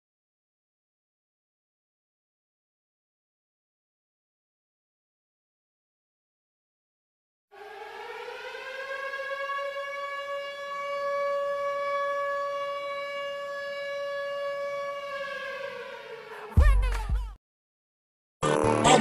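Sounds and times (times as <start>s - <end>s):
siren-like wail: 7.5s - 17.3s.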